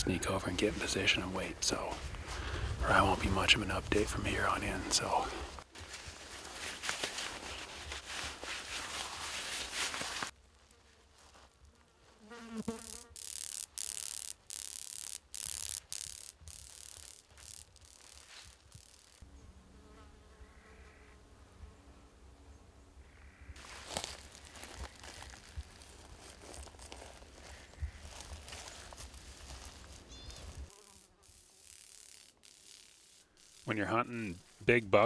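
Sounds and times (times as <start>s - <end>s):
insects buzzing: 9.9s - 34.7s.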